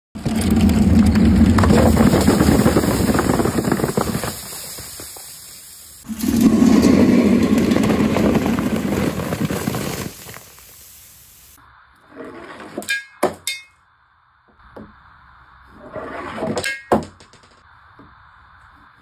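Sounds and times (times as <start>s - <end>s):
bottles and cans crashing: 0.2s - 10.6s, 16.5s - 17.6s
fizzing spray: 1.8s - 6.4s, 9.1s - 11.6s.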